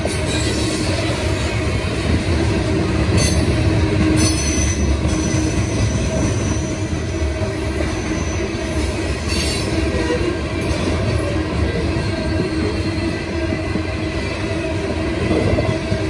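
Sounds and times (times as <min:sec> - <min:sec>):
train wheels rumbling on rail: 0:00.0 - 0:16.0.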